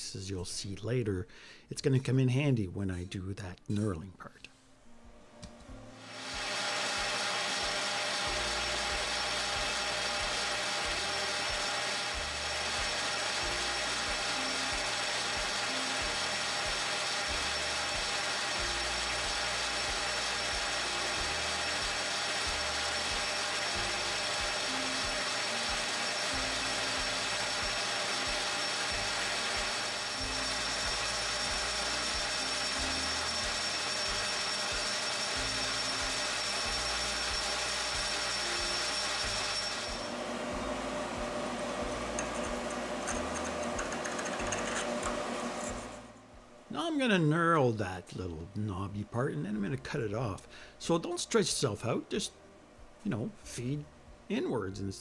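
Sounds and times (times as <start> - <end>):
metal lathe running: 6.0 - 46.0.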